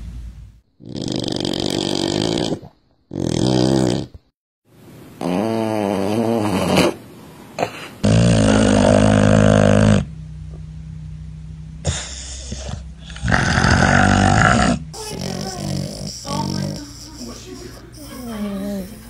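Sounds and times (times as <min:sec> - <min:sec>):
dogs snoring: 0:00.8 - 0:04.3, 0:05.2 - 0:07.0, 0:07.6 - 0:10.2, 0:11.8 - 0:19.0.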